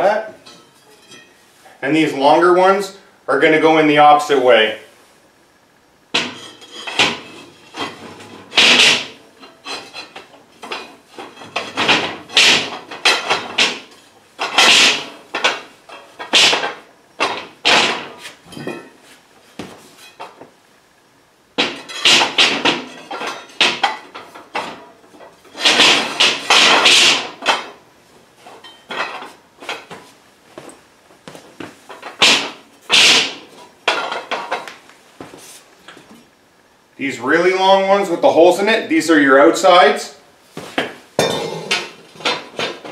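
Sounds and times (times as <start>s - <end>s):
steel plates clanking and scraping: 0.4s - 1.4s, 6.2s - 19.0s, 21.6s - 27.8s, 41.2s - 42.9s.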